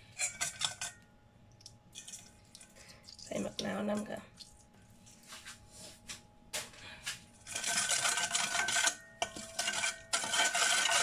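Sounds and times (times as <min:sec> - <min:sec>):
metal spoon scraping a bowl: 0:07.4 - 0:11.0.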